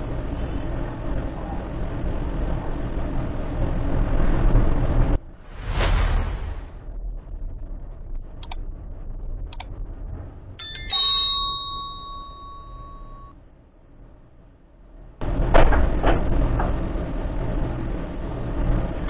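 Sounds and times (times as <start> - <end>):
loud rumbling noise: 0.0 - 10.6, 14.2 - 19.0
bell chime: 10.6 - 13.3.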